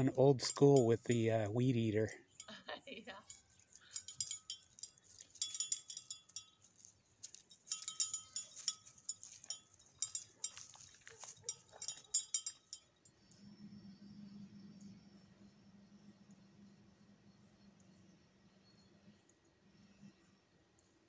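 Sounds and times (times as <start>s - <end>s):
steady low hum: 0.0s - 6.6s, 11.3s - 20.9s
small metal chimes tinkling: 0.0s - 13.4s.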